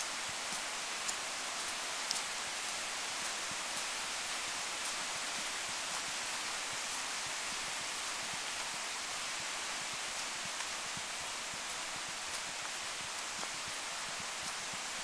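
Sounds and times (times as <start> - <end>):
rain-like hiss: 0.0 - 15.0.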